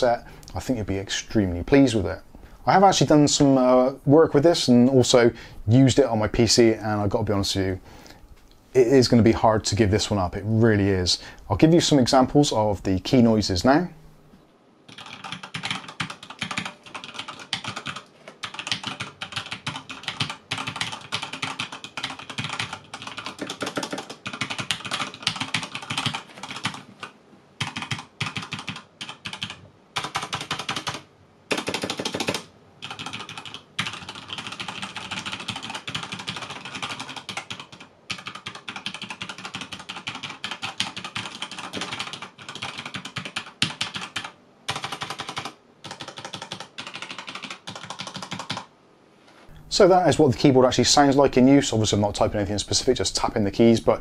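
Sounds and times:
mechanical keyboard typing: 14.9s - 48.7s.

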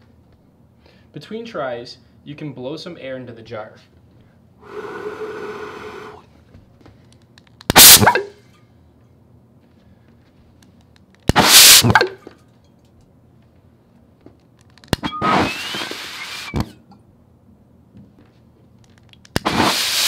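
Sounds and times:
alcohol vapour whooshing bursts: 4.6s - 6.2s, 11.4s - 11.9s, 15.2s - 16.6s, 19.4s - 20.0s.

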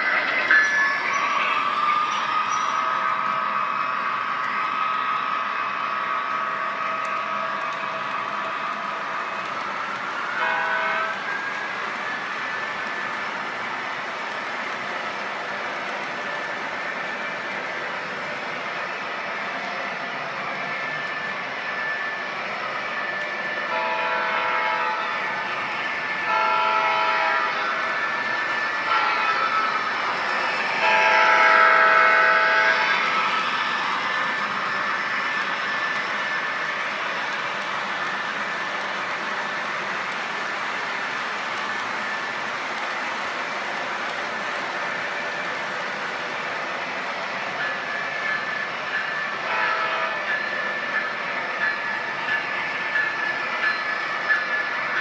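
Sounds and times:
diesel engine and running train: 0.0s - 55.0s
model locomotive air horn: 10.4s - 11.3s, 23.7s - 25.3s, 26.3s - 27.8s, 30.8s - 32.9s, 49.4s - 50.2s.

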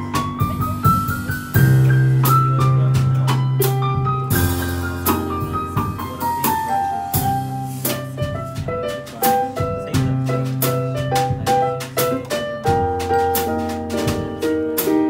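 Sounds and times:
drum kit bossa nova beat: 0.0s - 15.0s
electric piano melody and chords: 0.0s - 15.0s.

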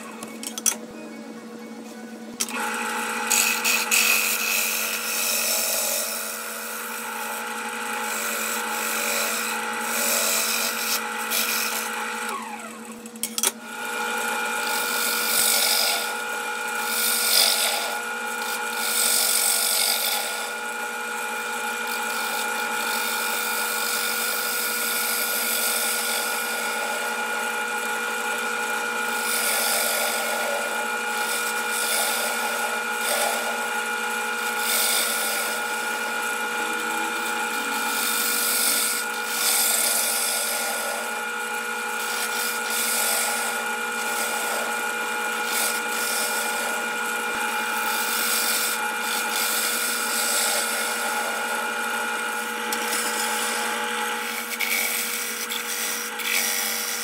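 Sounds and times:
lathe motor whine: 2.4s - 57.0s
turning tool scraping wood: 2.5s - 12.4s, 14.6s - 16.2s, 16.8s - 20.6s, 28.1s - 57.0s.

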